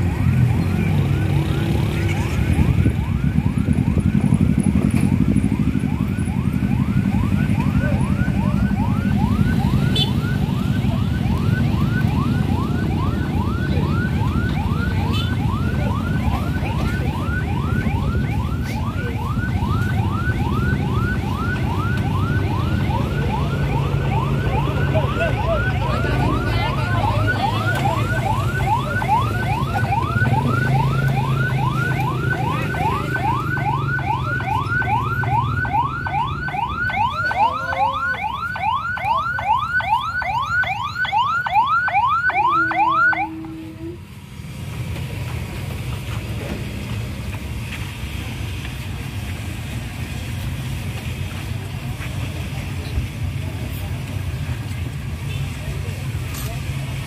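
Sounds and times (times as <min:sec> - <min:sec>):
electronic siren sweeping: 0:00.0 - 0:44.2
motorcycle engines running: 0:00.0 - 0:57.0.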